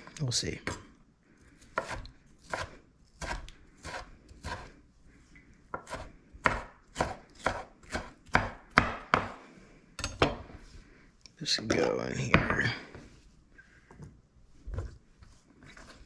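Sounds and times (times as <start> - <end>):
knife chopping on cutting board: 1.8 - 4.7, 5.7 - 9.4.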